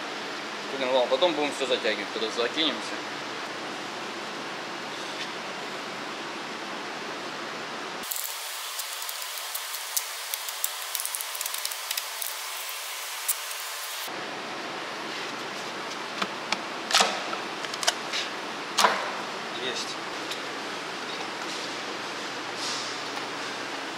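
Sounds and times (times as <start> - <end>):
steady hiss: 8.0 - 14.1.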